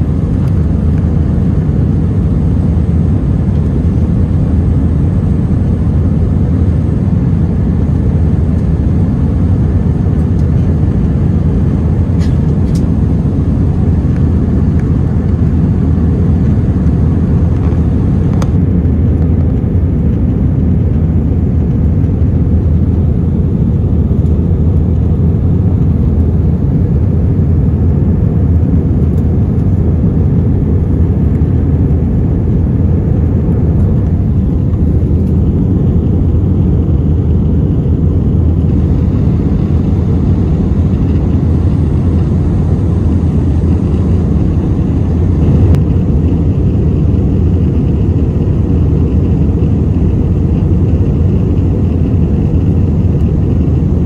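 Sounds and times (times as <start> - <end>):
aircraft engine roar in cabin: 0.0 - 54.0
rushing air: 42.5 - 48.3.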